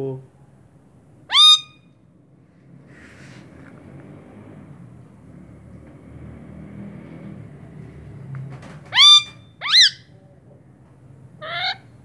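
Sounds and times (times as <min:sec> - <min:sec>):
parakeet squawking: 0:01.3 - 0:01.9, 0:08.9 - 0:10.1, 0:11.4 - 0:11.9.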